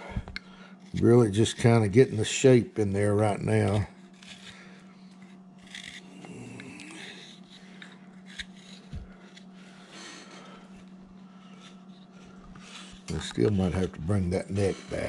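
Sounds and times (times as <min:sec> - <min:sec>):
knife scraping wood: 0:03.4 - 0:13.7.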